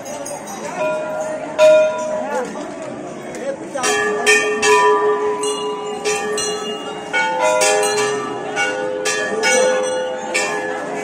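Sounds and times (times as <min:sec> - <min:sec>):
temple bells ringing: 0:00.0 - 0:02.6, 0:03.7 - 0:11.0.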